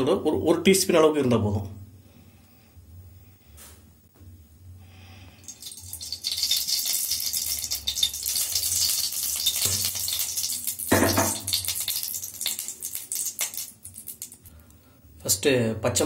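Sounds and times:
oil sizzling in a pan: 5.4 - 14.4.

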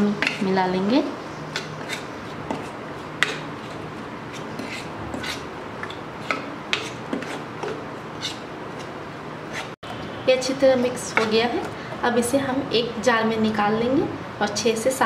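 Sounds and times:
spoon scraping plastic bowl: 1.6 - 9.8.

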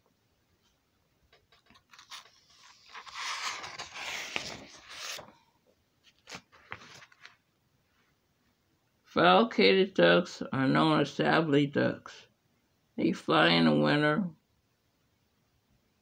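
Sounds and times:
paper rustling and crinkling: 1.4 - 5.4, 6.0 - 7.4.

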